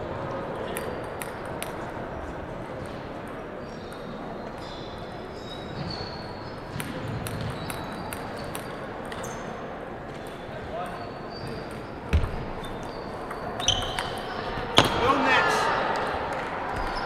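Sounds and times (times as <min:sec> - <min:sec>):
table tennis ball bouncing: 0:06.6 - 0:09.5, 0:10.2 - 0:14.2.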